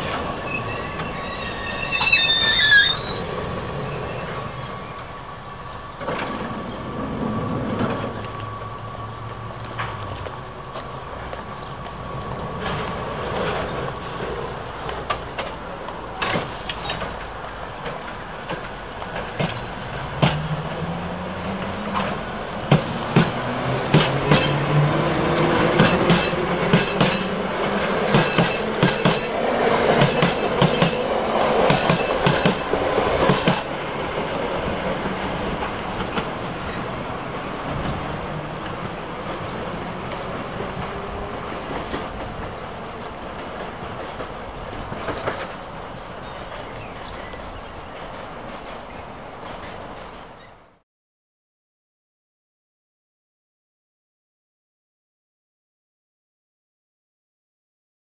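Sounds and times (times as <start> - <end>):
wheels clicking over rail joints: 5.7 - 50.4.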